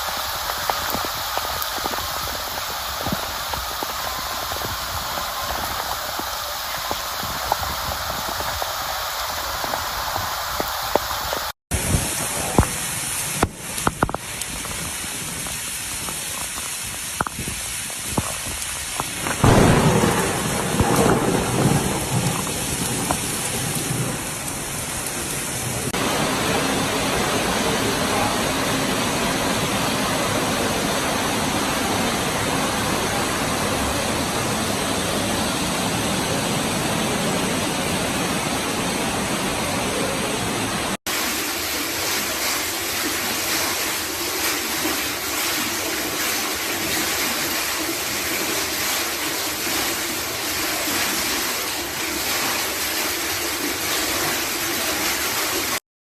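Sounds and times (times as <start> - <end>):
floodwater pouring down stairs: 0.0 - 55.8
rain hissing: 0.0 - 55.8.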